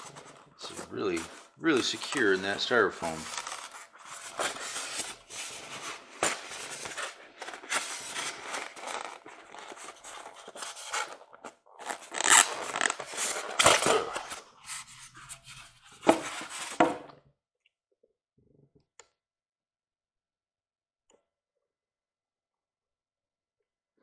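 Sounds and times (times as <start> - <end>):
styrofoam rubbing and scraping: 0.0 - 16.9.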